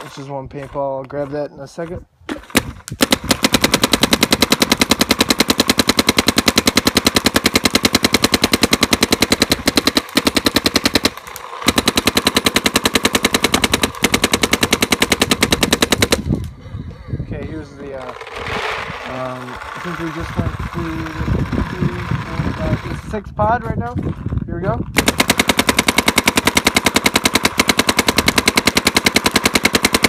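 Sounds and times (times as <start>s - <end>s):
paintball marker rapid firing: 1.8s - 16.5s, 25.0s - 30.0s.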